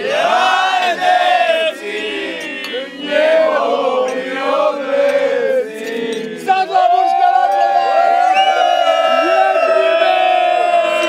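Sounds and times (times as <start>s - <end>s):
men singing in chorus: 0.0s - 6.5s.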